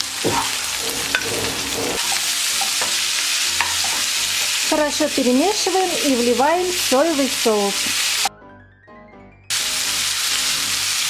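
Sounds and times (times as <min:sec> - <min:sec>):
food sizzling in a pan: 0:00.0 - 0:08.3, 0:09.5 - 0:11.0
spatula scraping a pan: 0:00.2 - 0:04.8.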